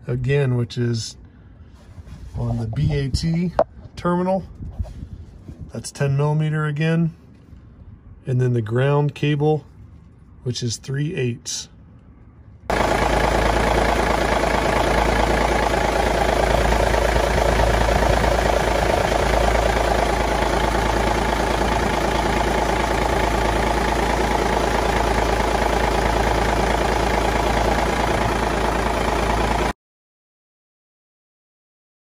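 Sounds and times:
diesel engine idling: 12.7 - 29.8.

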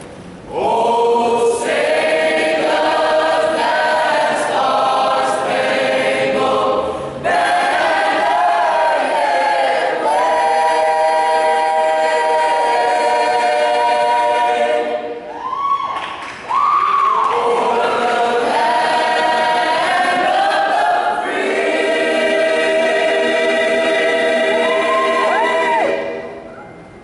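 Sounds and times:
choir singing in harmony: 0.5 - 15.3, 17.2 - 26.5.

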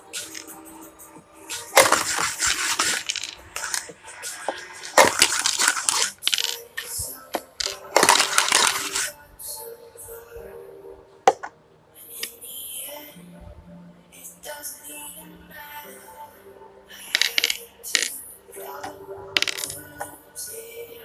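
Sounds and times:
dice rattling in plastic cup: 1.6 - 7.0, 7.6 - 9.1, 17.2 - 18.1, 19.4 - 19.9.

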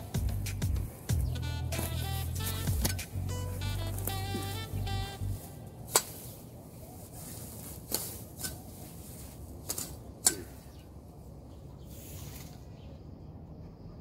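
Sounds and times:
cleaver chopping grass: 0.0 - 3.2, 3.9 - 4.8, 5.8 - 6.4, 7.7 - 8.8, 9.6 - 10.6
background music: 0.0 - 5.8.

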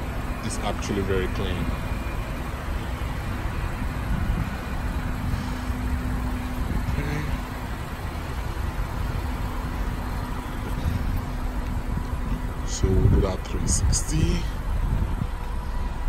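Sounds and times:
constant low hum: 0.0 - 16.0
motor vehicle rumble: 0.0 - 16.0.

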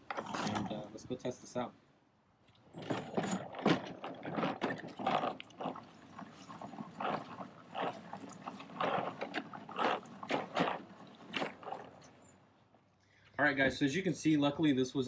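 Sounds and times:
lawn spreader rattling: 0.0 - 0.9, 2.6 - 12.8.

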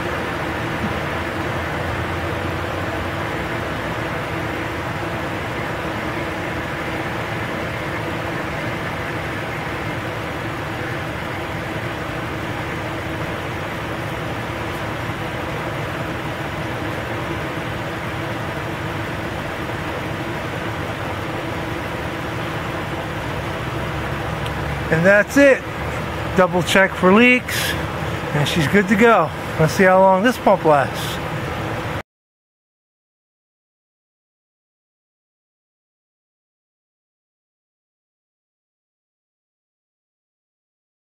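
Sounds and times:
car engine idling: 0.0 - 32.0.

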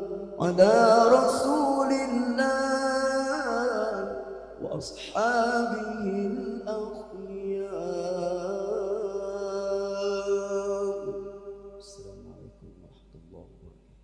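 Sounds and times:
man singing a drawn-out vowel: 0.0 - 13.8.

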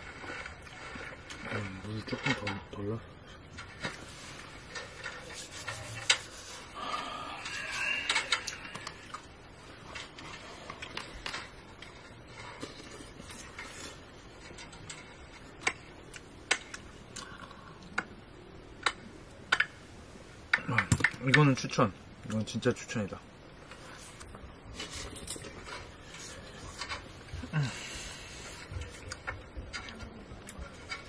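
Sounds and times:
camping stove hissing: 5.2 - 8.9.

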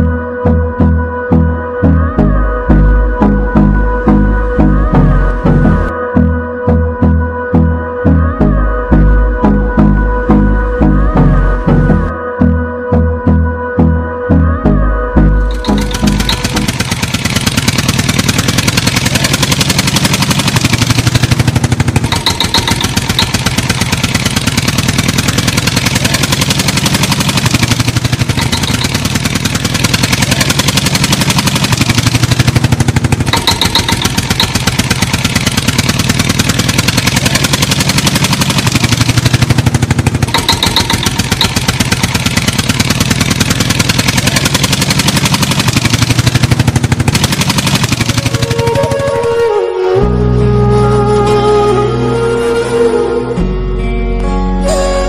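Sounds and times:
engine idling: 2.0 - 6.0, 15.1 - 53.2.

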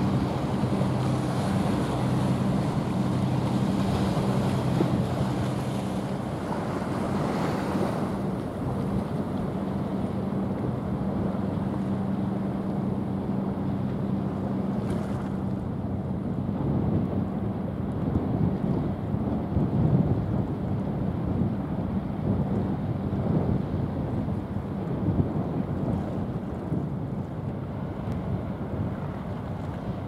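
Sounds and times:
water wash: 0.0 - 15.8
ship diesel engine drone: 0.0 - 30.0
wind on microphone: 0.0 - 30.0.

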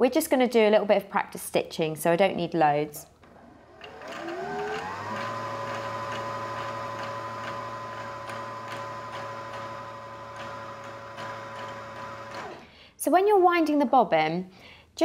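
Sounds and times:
sewing machine motor whining: 3.3 - 12.7.

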